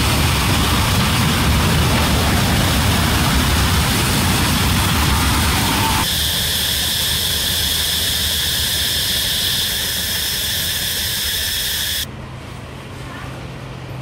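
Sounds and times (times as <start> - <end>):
low hum: 0.0 - 9.0
wagon wheels squealing on rails: 4.9 - 12.1.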